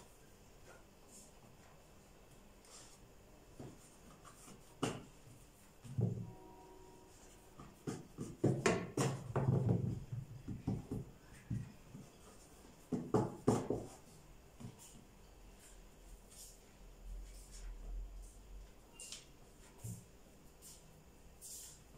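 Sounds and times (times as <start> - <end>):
hands pressing dough on wood: 3.6 - 5.2, 7.6 - 12.1, 12.7 - 14.8.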